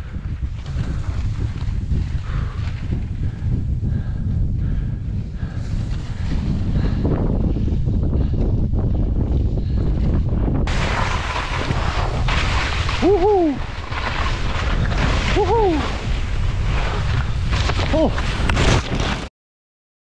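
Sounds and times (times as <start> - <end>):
wind rumbling on microphone: 0.0 - 19.3
skis carving on snow: 0.3 - 3.1, 5.4 - 7.8, 10.7 - 19.3.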